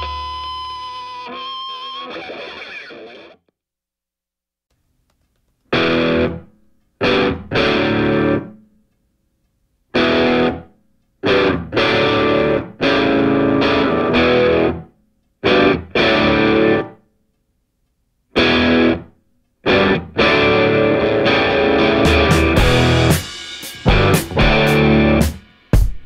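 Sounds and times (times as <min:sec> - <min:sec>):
distorted electric guitar stabs: 0:00.0 - 0:03.4, 0:05.7 - 0:06.4, 0:07.0 - 0:08.5, 0:10.0 - 0:10.6, 0:11.2 - 0:14.8, 0:15.4 - 0:16.9, 0:18.4 - 0:19.1, 0:19.7 - 0:25.9.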